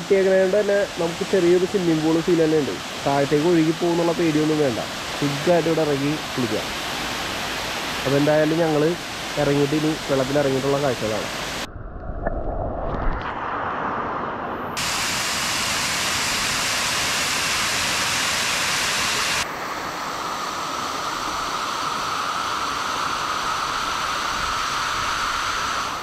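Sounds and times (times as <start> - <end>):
waterfall rushing: 0.0 - 11.7, 14.8 - 19.5.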